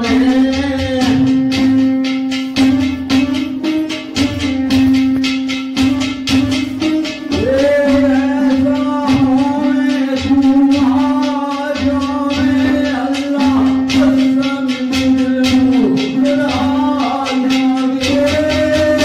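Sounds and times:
man singing into a microphone: 0:00.0 - 0:01.8, 0:07.2 - 0:19.0
plucked lute strings: 0:00.0 - 0:19.0.

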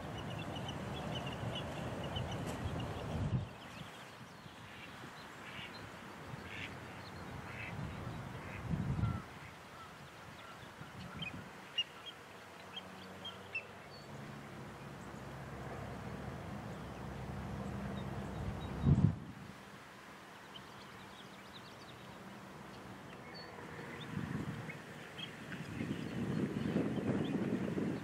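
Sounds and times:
water bird calls: 0:04.5 - 0:13.8.

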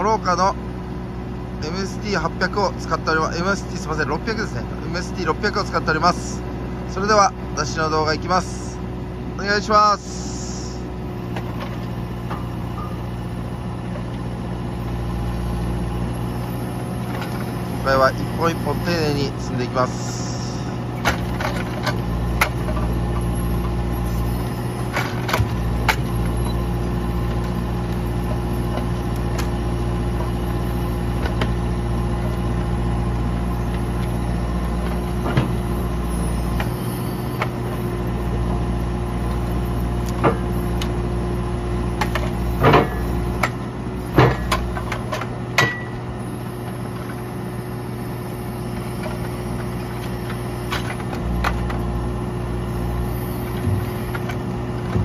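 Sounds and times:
diesel engine running: 0:00.0 - 0:55.0
logs knocking and thudding: 0:33.3 - 0:35.8, 0:39.3 - 0:41.0, 0:41.9 - 0:46.0, 0:53.4 - 0:55.0.

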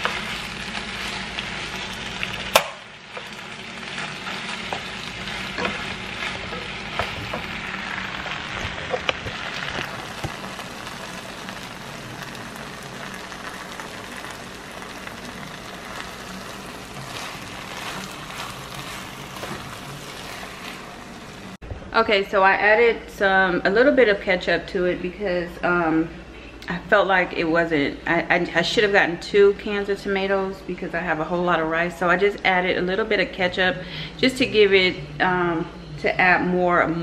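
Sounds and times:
food sizzling in a pan: 0:00.0 - 0:21.6.

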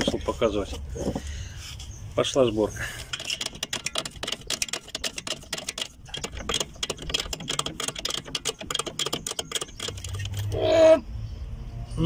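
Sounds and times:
ratchet wrench clicking: 0:03.0 - 0:10.6.

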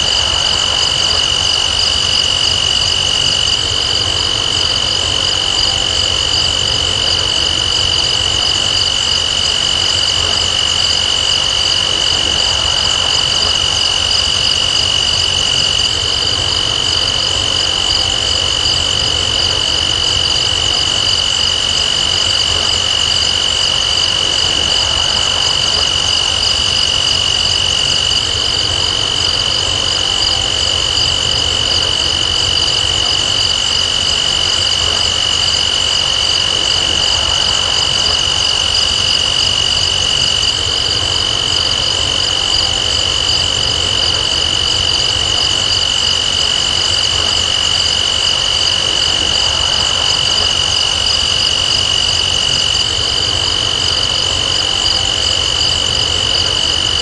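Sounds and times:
crickets and insects trilling: 0:00.0 - 0:57.0
wind rumble on microphone: 0:00.0 - 0:57.0.

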